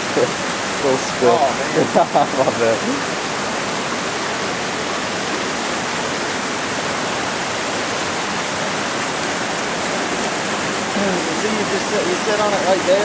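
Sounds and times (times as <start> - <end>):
small waterfall rushing: 0.0 - 13.0.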